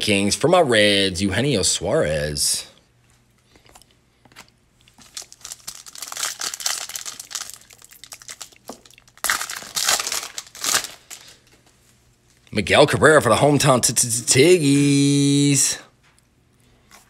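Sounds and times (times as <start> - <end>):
foil wrapper tearing and crinkling: 5.0 - 11.5.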